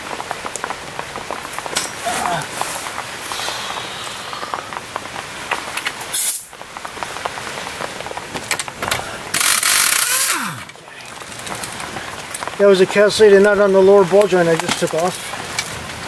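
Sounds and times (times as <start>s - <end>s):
metal tools clinking: 1.8s - 2.0s
pneumatic impact wrench: 9.4s - 10.6s.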